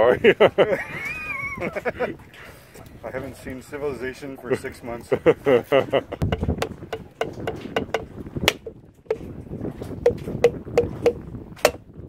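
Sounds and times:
hammer tapping coconut: 6.2 - 9.2, 10.0 - 11.8.

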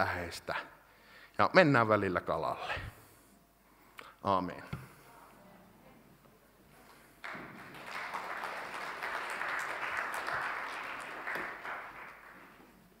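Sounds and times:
congregation applauding: 6.9 - 13.0.

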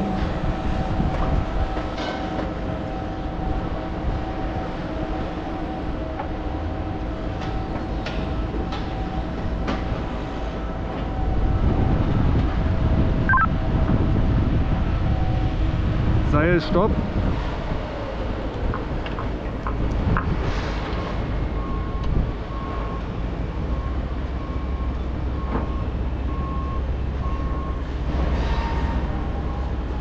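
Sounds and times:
low rumble: 0.0 - 1.9
crane machinery humming: 0.0 - 16.2
brief chirp: 13.3 - 13.5.

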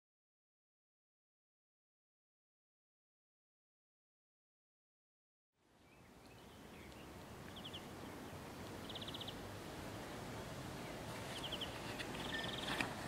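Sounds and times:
steady outdoor hiss: 5.6 - 13.0
rapid chirping trills: 8.8 - 9.4.

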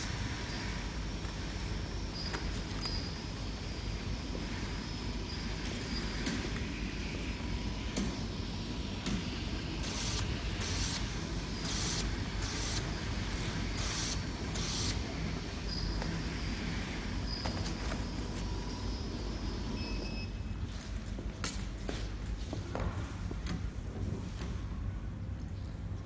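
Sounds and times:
conveyor humming: 0.0 - 26.0.

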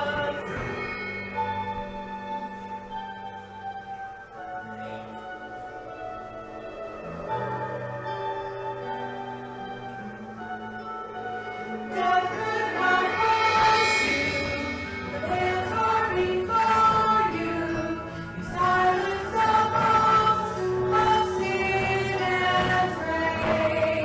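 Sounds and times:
sustained instrumental accompaniment: 0.0 - 24.0
choir singing slow melody: 10.0 - 24.0.

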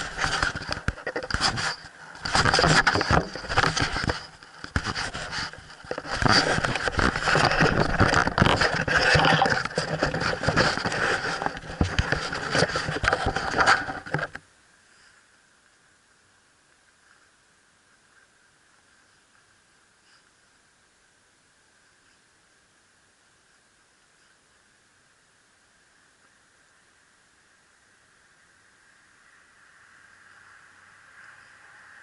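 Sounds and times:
fingers scraping camera body: 0.0 - 14.4.

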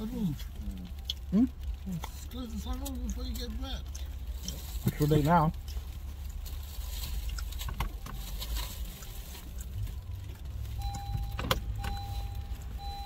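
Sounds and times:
car cabin rumble: 10.8 - 13.0.

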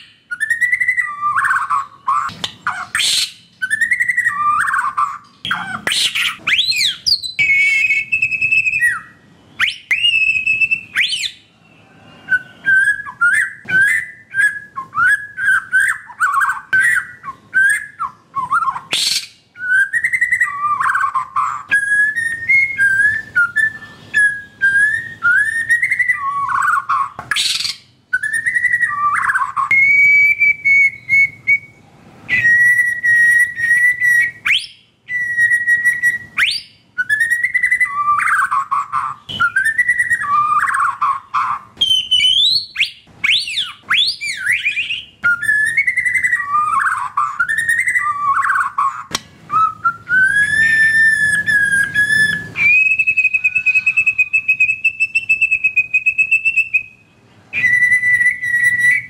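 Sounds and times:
bird singing whistled phrases: 0.0 - 59.0.

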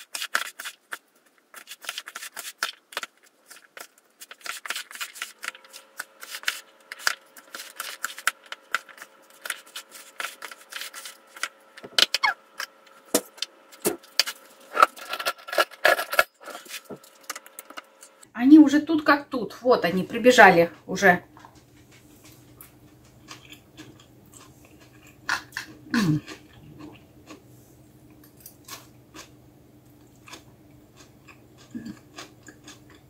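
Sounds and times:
spatula stirring wet salad: 0.0 - 11.6
faint steady hum: 0.0 - 33.0.

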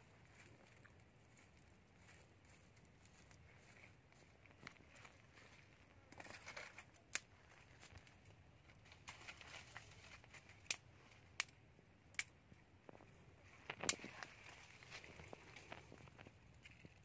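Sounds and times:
rustle of twigs and leaves: 0.0 - 11.5, 12.9 - 17.0
twig fire crackling: 0.0 - 17.0
sharp snaps: 10.6 - 12.4.

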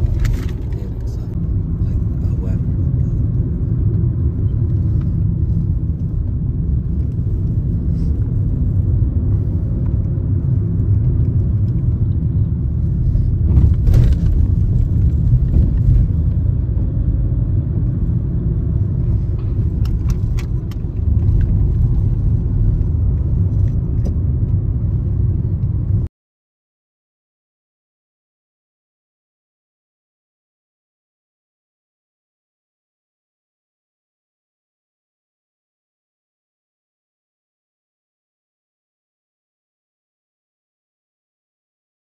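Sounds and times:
car road and engine rumble: 0.0 - 26.1.

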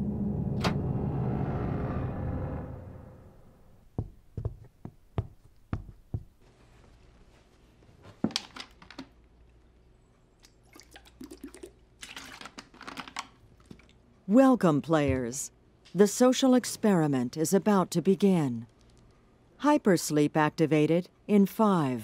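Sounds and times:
footsteps on hard floor: 4.0 - 8.3
plastic bottle clicks and crackles: 8.3 - 9.2, 12.1 - 13.9
person gulping water: 10.4 - 12.7, 13.5 - 14.0.

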